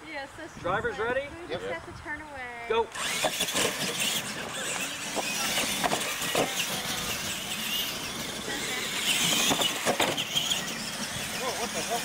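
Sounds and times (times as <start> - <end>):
toy truck motors whining: 2.9 - 12.0
knocks and clatters: 4.8 - 6.7, 9.2 - 10.5.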